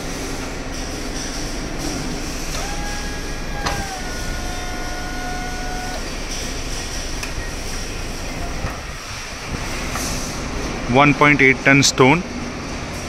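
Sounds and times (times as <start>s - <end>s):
constant rumble: 0.0s - 13.0s
electric drive whining: 1.4s - 9.7s.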